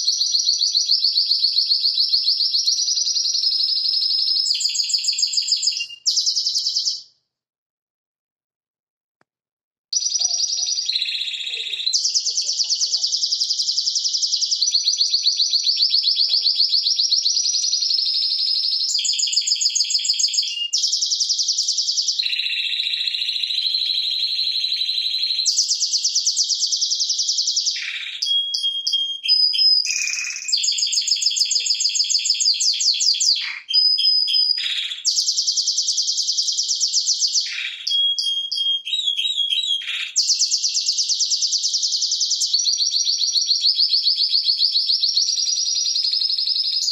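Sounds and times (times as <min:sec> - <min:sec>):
canary singing trills: 0:10.0 - 0:46.9
canary whistled notes: 0:27.8 - 0:30.7.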